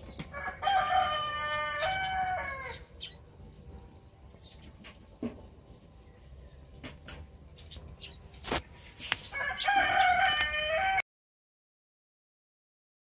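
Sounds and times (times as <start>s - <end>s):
rooster crowing: 0.3s - 2.9s, 9.3s - 11.0s.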